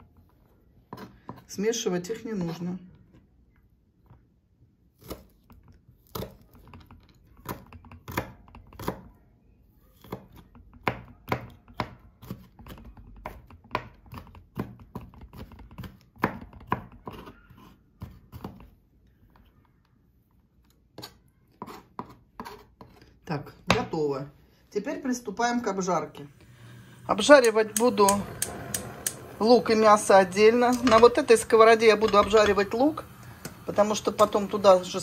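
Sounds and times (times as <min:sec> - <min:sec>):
knife chopping on plastic board: 0:10.0 - 0:17.3.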